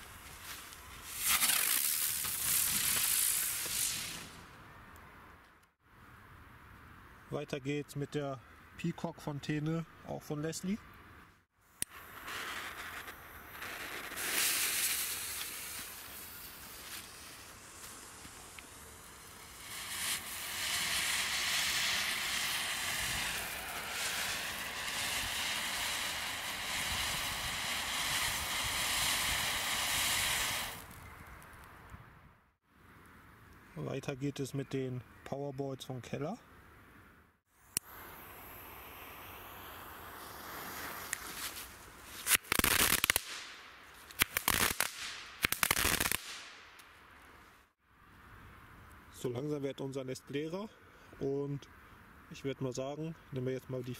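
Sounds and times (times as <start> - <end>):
firework fountain hissing: 1.1 - 4.4, 11.9 - 31.0, 37.8 - 43.5.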